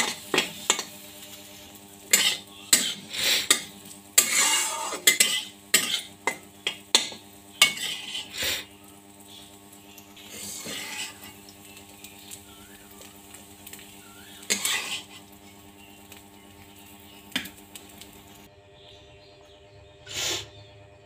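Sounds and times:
spatula scraping metal pan: 0:00.0 - 0:00.9, 0:02.1 - 0:08.7, 0:10.2 - 0:11.5, 0:13.7 - 0:15.6
steady low hum: 0:00.0 - 0:21.0.

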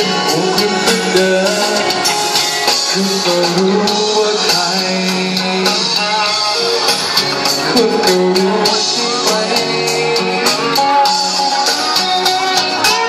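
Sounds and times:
backing track drum beat: 0:00.0 - 0:13.0
guitar: 0:00.0 - 0:13.0
man singing into a microphone: 0:00.0 - 0:13.0.

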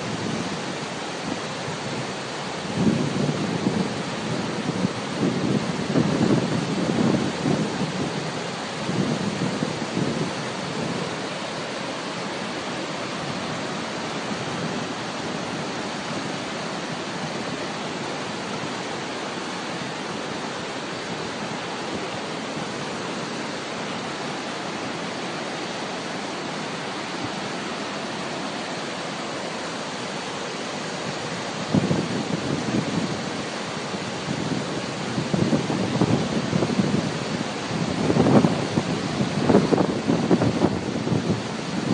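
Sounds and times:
wind buffeting microphone: 0:00.0 - 0:18.8, 0:30.8 - 0:41.9
waterfall rushing water: 0:00.0 - 0:41.9.

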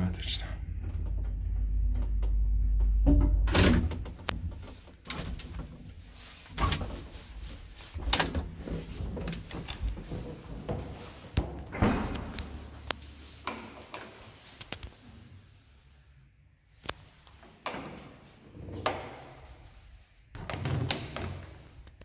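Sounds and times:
lift motor humming: 0:00.6 - 0:11.1
door and latch clicks and clunks: 0:00.8 - 0:05.9, 0:08.0 - 0:12.7.

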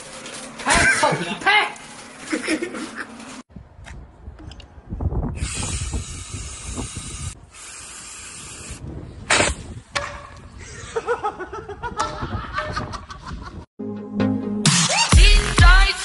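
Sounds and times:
aerosol can hissing: 0:05.4 - 0:08.8.

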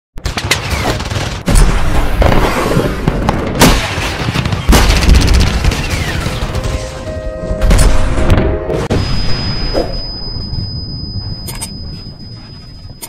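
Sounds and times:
continuous gunfire: 0:00.2 - 0:09.4
explosion booms: 0:07.6 - 0:10.5.

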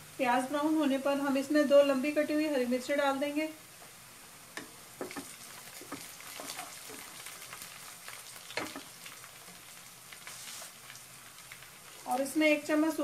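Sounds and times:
onions sizzling in oil: 0:00.0 - 0:13.0
spatula scraping a pan: 0:05.0 - 0:07.2.

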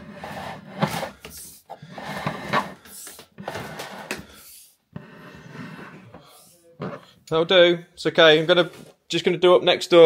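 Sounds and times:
rod scraping and knocking in wall: 0:00.0 - 0:07.1.

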